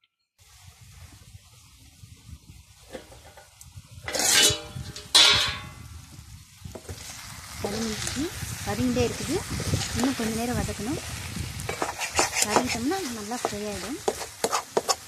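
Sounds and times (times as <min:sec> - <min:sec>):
chicken sizzling in a pan: 0:00.4 - 0:15.0
metallic clanks of cookware: 0:02.9 - 0:05.8.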